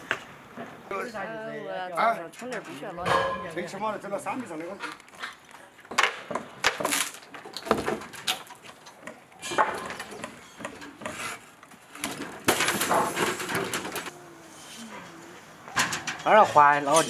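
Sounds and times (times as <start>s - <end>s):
wooden knocks and scrapes: 9.4s - 14.1s.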